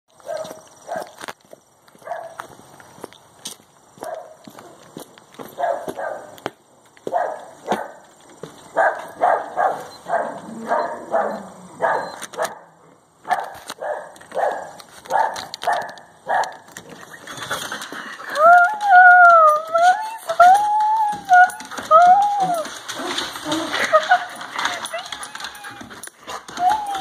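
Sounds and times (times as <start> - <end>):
dog barking: 0.2 - 1.2, 2.0 - 2.4, 4.0 - 4.4, 5.6 - 6.3, 7.1 - 8.0, 8.8 - 16.6
dog howling: 10.2 - 12.1, 18.3 - 27.0.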